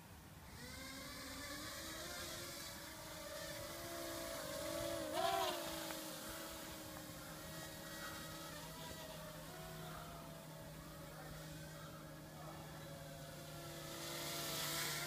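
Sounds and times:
quadcopter motors whining: 0:00.0 - 0:15.0.

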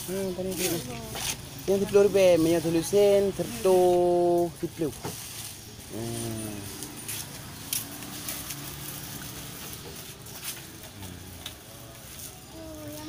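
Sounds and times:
faint shopper voices: 0:00.0 - 0:13.0
clicks and rustles of goods: 0:03.8 - 0:13.0.

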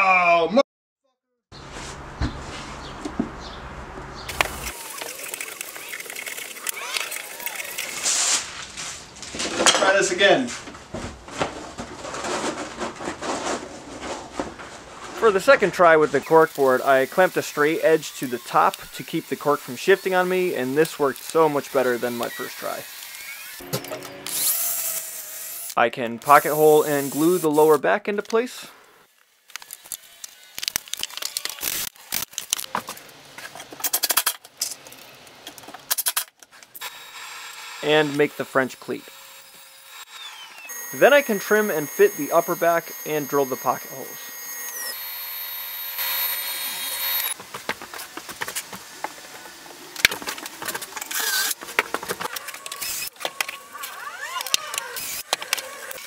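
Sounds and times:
scraping and rustling: 0:04.3 - 0:16.2
drill boring holes: 0:16.2 - 0:23.6, 0:36.8 - 0:47.4, 0:51.1 - 0:51.6, 0:52.5 - 0:56.0.

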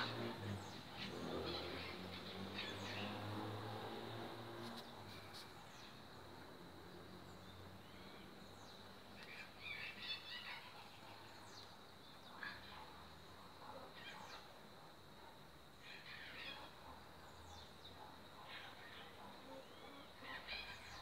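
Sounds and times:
low background noise: 0:00.0 - 0:21.0
faint bird chirps: 0:07.2 - 0:14.6, 0:15.2 - 0:21.0.

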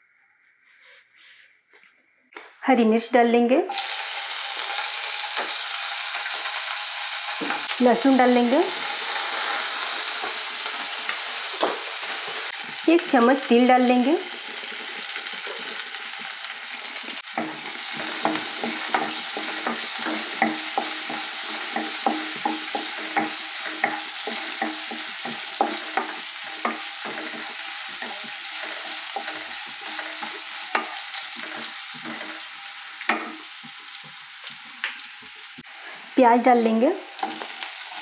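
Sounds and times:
food sizzling in hot oil: 0:03.7 - 0:38.0
wooden spatula knocking on pan: 0:17.4 - 0:28.2.

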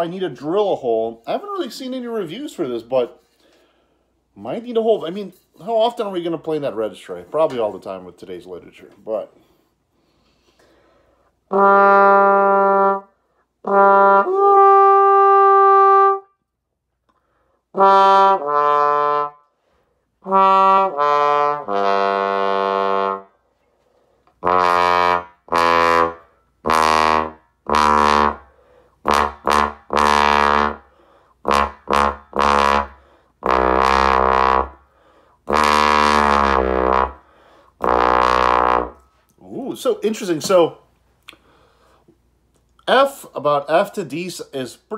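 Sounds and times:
muted bass trombone notes: 0:11.5 - 0:16.3, 0:17.8 - 0:19.4, 0:20.2 - 0:23.3, 0:24.4 - 0:30.8, 0:31.4 - 0:34.8, 0:35.5 - 0:37.2, 0:37.8 - 0:39.0.

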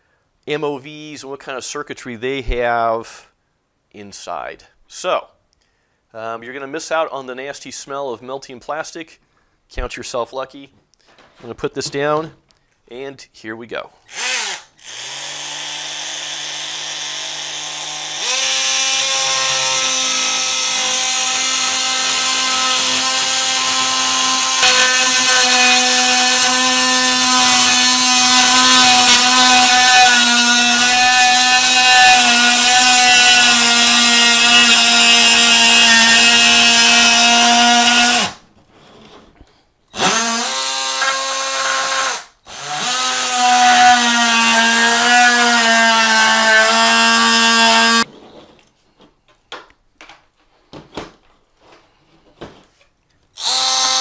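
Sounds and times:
oscillating tool cutting plastic: 0:18.1 - 0:38.4.

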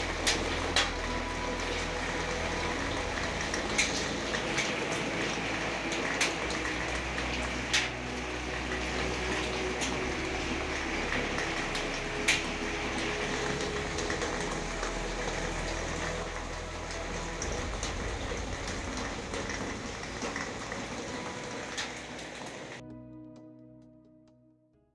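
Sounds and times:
rain splashing on wet paving: 0:00.0 - 0:22.8.

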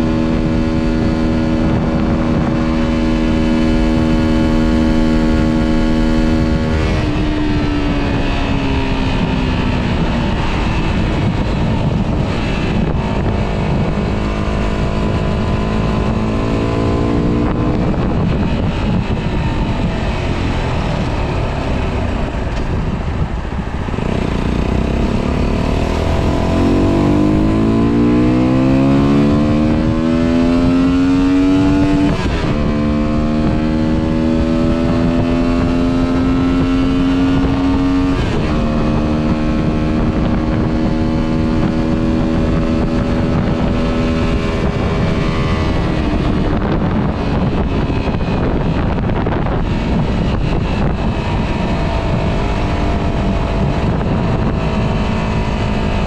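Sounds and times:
motorcycle engine accelerating: 0:00.0 - 0:56.0
wind rushing over microphone: 0:00.0 - 0:56.0.

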